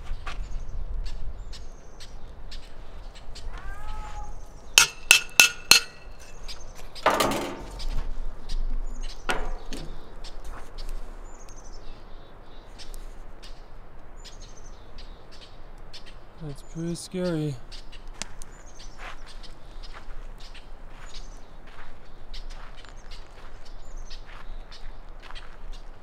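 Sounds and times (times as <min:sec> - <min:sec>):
metal pot banging: 0:04.8 - 0:06.3, 0:07.0 - 0:07.8.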